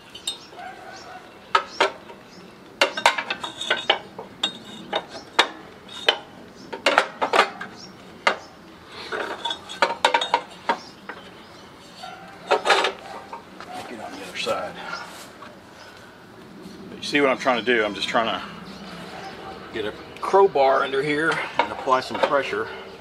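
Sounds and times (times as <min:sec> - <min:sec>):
metallic clanks and clinks: 0:02.8 - 0:08.5, 0:09.1 - 0:11.2, 0:11.8 - 0:13.0.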